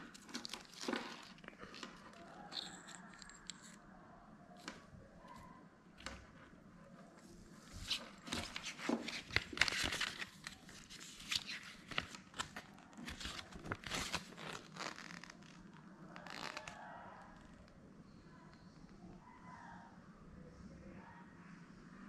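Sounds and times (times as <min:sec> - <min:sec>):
paper and plastic packaging crinkling: 0:00.0 - 0:03.8, 0:07.8 - 0:15.2.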